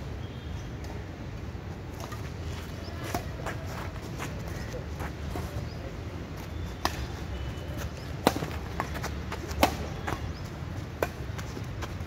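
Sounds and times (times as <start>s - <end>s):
rackets hitting shuttlecock: 8.1s - 10.4s, 11.0s - 12.0s.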